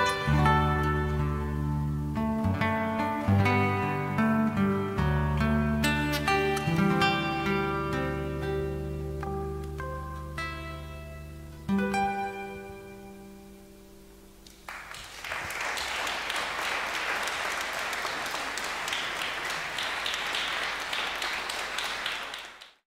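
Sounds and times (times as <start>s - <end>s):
acoustic guitar chord ringing: 0.0s - 14.4s
audience applause: 14.6s - 22.8s.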